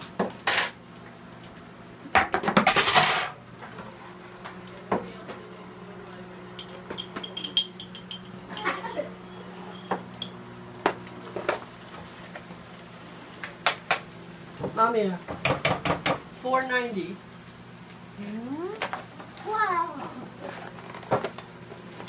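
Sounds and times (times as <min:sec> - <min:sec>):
pans and utensils clattering: 0:02.2 - 0:03.4, 0:06.6 - 0:10.4.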